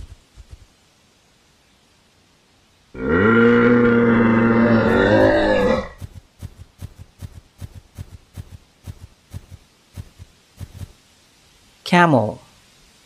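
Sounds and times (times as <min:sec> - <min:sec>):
cartoon hoof footsteps: 0:00.0 - 0:00.7, 0:04.9 - 0:11.0
deep animal bellow: 0:03.0 - 0:06.0.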